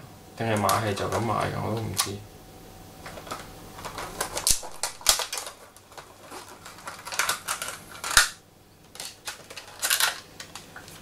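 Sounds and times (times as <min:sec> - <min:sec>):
plastic bag crinkling: 0:03.0 - 0:11.0.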